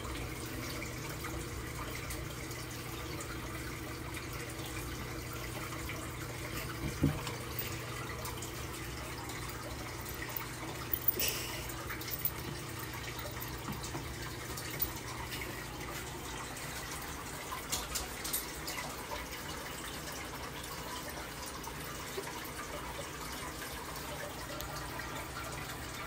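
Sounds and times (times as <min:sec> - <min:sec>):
background hum and hiss: 0:00.0 - 0:26.0.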